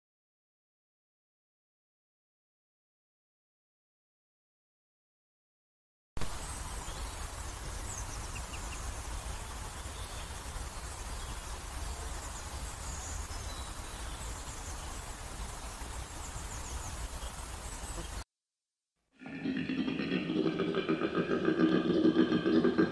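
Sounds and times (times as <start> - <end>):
steady hiss: 6.2 - 18.2
faint bird chirps: 6.3 - 18.2.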